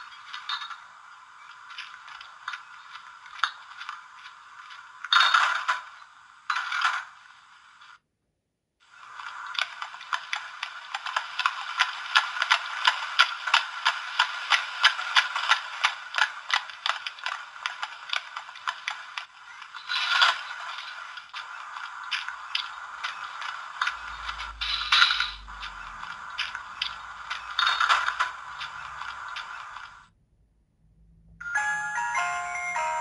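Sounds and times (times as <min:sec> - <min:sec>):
hiss: 0:08.9 - 0:30.1
evenly spaced mechanical clicks: 0:09.1 - 0:30.1
rattling sound effect: 0:09.2 - 0:30.0.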